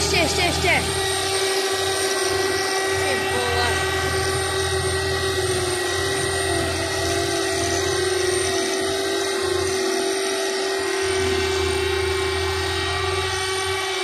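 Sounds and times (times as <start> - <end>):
combine harvester droning with whine: 0.0 - 14.0.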